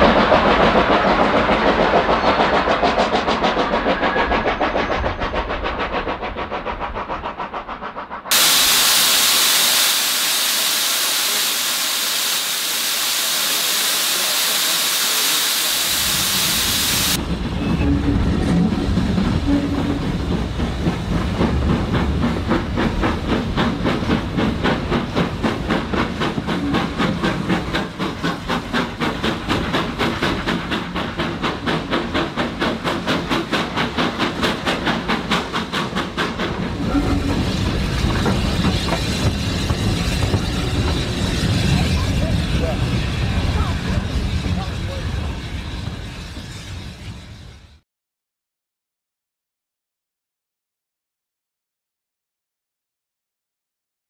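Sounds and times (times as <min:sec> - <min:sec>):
steam hissing: 0:00.1 - 0:17.2, 0:20.2 - 0:46.6
locomotive exhaust beats: 0:18.2 - 0:47.5
train rhythmic beat: 0:19.2 - 0:42.3.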